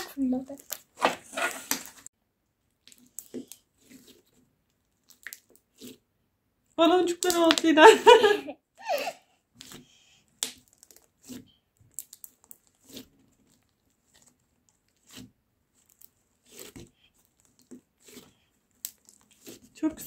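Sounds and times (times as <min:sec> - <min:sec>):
slime bubbles popping: 0:05.0 - 0:05.9, 0:07.0 - 0:07.8.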